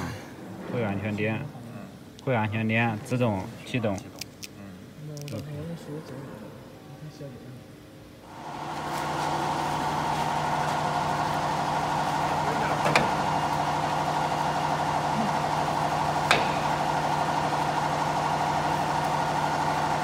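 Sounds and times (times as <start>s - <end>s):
wood lathe machine hum: 8.3s - 20.0s.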